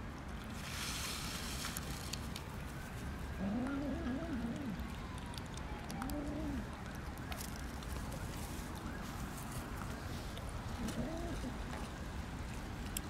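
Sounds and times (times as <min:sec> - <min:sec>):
cats eating wet food: 0:00.2 - 0:13.0
dove cooing: 0:03.4 - 0:04.8, 0:06.0 - 0:06.7, 0:10.8 - 0:11.7.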